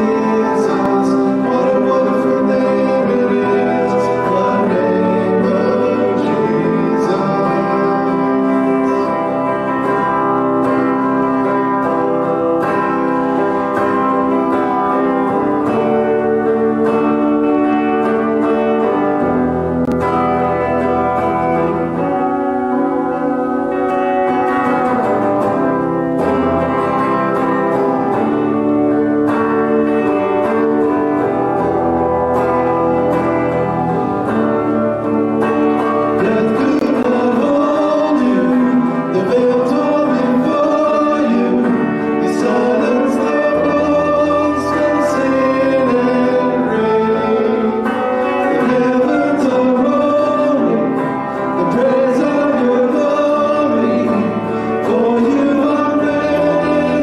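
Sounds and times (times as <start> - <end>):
man singing into a microphone: 0.0 - 11.9, 35.5 - 57.0
acoustic guitar: 0.0 - 57.0
keyboard: 0.0 - 57.0.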